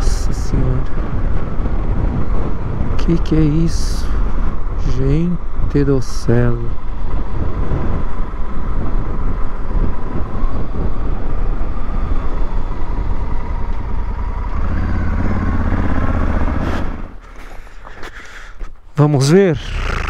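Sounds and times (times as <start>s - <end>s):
wind rushing over microphone: 0.0s - 20.0s
motorcycle engine running: 11.4s - 17.2s.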